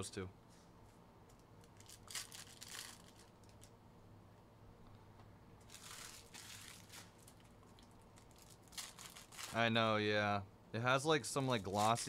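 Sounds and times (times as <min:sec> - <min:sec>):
foil wrappers crinkling: 0:01.6 - 0:03.7, 0:05.6 - 0:09.7, 0:11.4 - 0:12.0.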